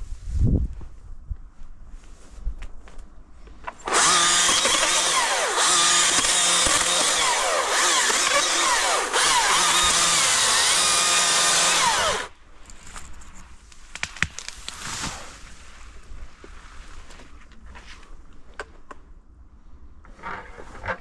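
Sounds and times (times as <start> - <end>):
chainsaw cutting wood: 3.8 - 12.3.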